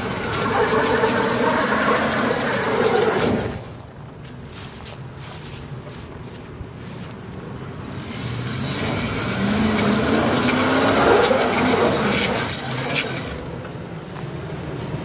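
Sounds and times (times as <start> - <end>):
grinding rasping noise: 0.0 - 3.7, 7.8 - 13.6
truck engine running: 0.0 - 15.0
tyres crunching on gravel: 0.0 - 15.0.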